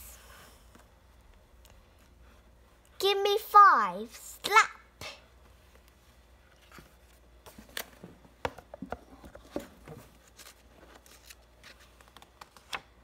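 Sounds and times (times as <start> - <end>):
book pages turning: 9.2 - 13.0.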